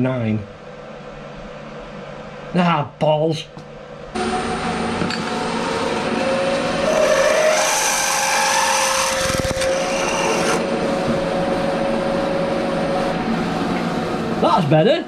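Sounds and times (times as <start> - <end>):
milling machine motor whine: 4.2 - 14.4
drill cutting into metal: 5.5 - 10.7.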